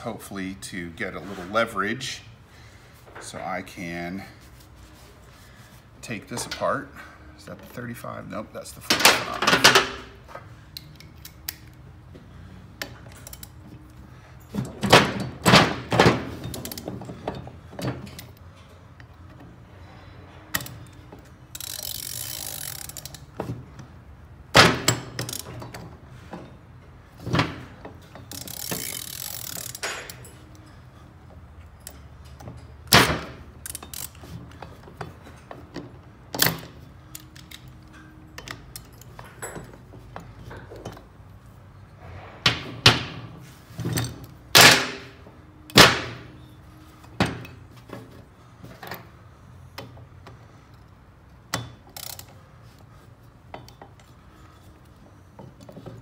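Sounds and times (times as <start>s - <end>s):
wrench clinking against metal: 12.8s - 15.6s, 16.3s - 23.4s, 24.7s - 26.6s, 27.8s - 31.0s, 31.6s - 41.3s, 50.6s - 52.4s.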